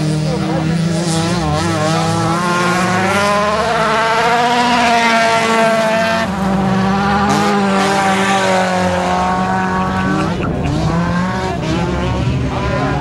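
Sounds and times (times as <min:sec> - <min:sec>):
race car engines revving: 0:00.0 - 0:13.0.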